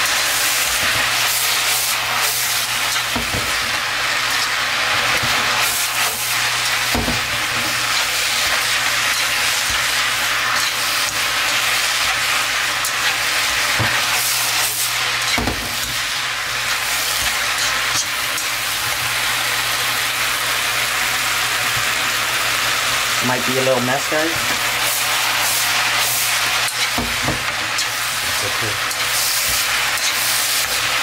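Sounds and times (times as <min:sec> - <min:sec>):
food sizzling in a wok: 0:00.0 - 0:31.0
utensils knocking against pan: 0:03.0 - 0:03.7, 0:06.9 - 0:07.8, 0:15.2 - 0:16.0.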